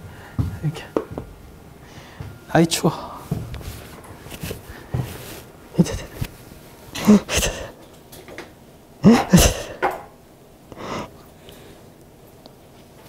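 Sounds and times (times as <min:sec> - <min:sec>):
man groaning exhalations: 0:07.0 - 0:07.8, 0:09.0 - 0:09.8.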